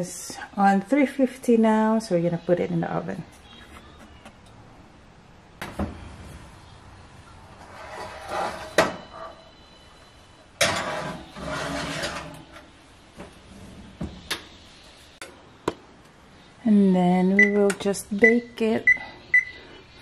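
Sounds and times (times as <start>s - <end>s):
metal pan scraping on oven rack: 7.6s - 9.4s, 10.6s - 12.6s.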